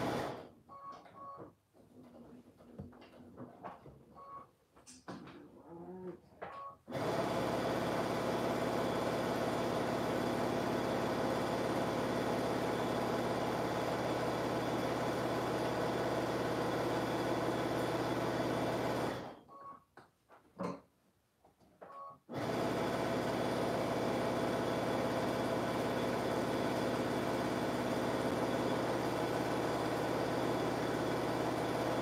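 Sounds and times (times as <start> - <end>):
electric sewing machine running: 0.0 - 0.4, 6.9 - 19.4, 22.3 - 32.0.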